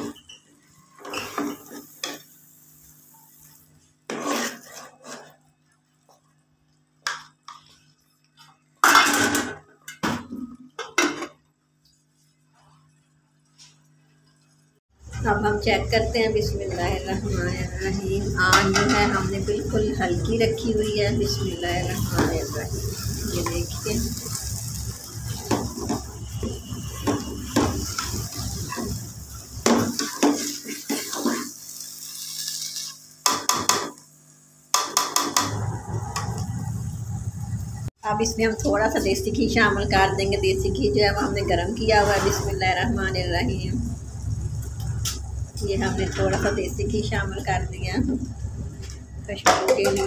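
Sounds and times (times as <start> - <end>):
metal spoon scraping a pot: 4.1 - 5.5.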